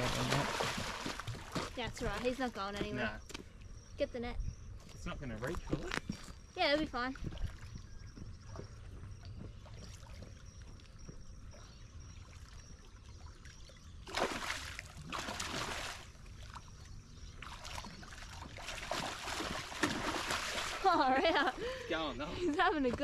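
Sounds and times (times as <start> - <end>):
water splashing: 0.0 - 2.9, 12.4 - 16.8, 17.4 - 23.0.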